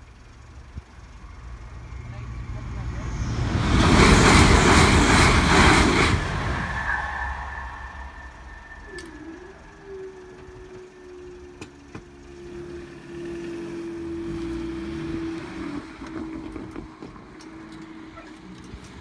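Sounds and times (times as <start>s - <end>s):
low car engine rumble: 0.0s - 4.7s, 7.3s - 19.0s
barrier motor whining: 8.0s - 17.9s.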